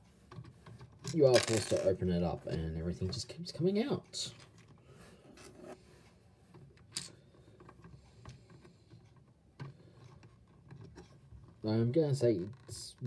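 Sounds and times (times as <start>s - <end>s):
plastic toy pieces handled: 0.3s - 2.0s.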